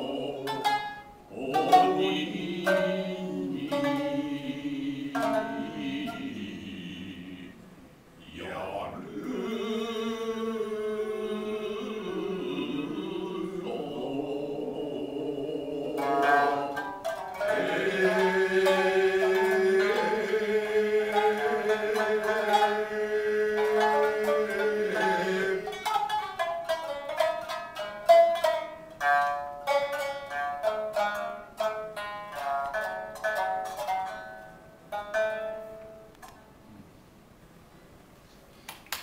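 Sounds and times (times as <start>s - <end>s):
plucked shamisen: 0.0s - 7.4s, 10.6s - 36.6s
voices holding long notes: 0.0s - 25.9s.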